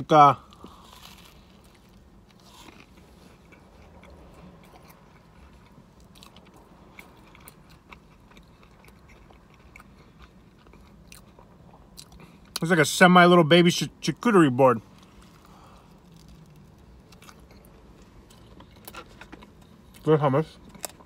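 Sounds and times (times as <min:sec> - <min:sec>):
chewing toast: 0:00.5 - 0:12.6.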